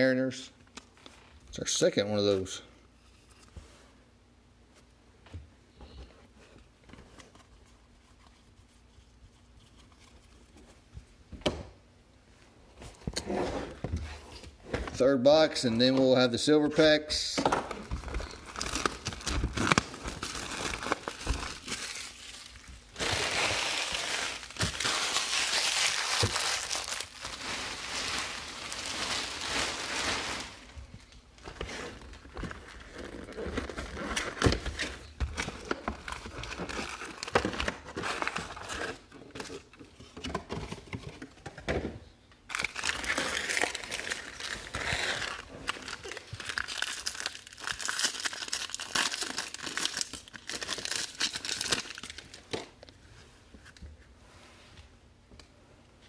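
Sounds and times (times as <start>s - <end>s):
foil packs rustling and crackling: 17.7s - 39.7s, 42.5s - 52.5s
cardboard tearing: 18.2s - 30.6s, 42.5s - 52.3s
foil wrapper tearing: 18.2s - 30.6s, 42.5s - 52.4s.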